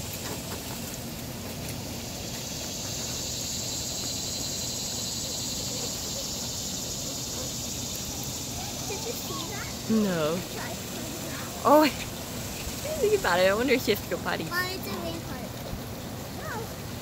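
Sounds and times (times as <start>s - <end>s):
high drone of insects: 0.0s - 17.0s.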